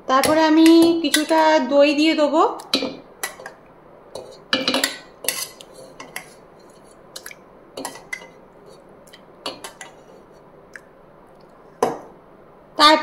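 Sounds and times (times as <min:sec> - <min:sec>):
spoon clinking and scraping metal: 0:04.2 - 0:06.3.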